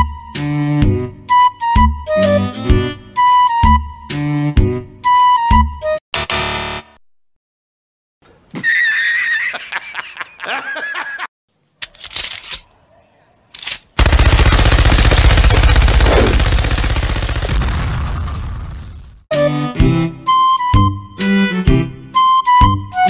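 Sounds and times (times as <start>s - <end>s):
man cackling laugh: 8.5s - 11.3s
rapid machine-gun fire: 14.0s - 19.0s.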